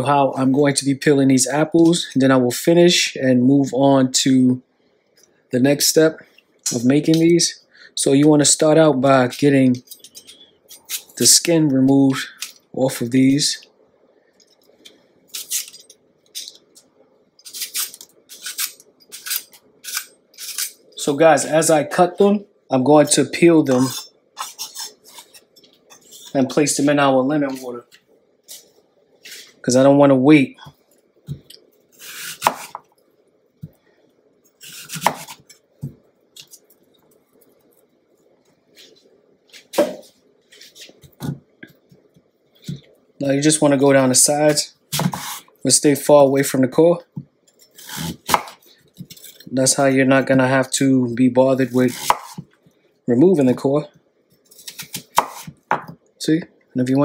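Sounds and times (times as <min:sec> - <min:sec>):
peeler scraping apple skin: 0:17.4 - 0:20.8
knife slicing apple: 0:23.7 - 0:25.4, 0:32.0 - 0:32.9, 0:34.6 - 0:35.5, 0:44.9 - 0:45.5, 0:47.8 - 0:49.5, 0:51.7 - 0:52.5, 0:54.6 - 0:55.9.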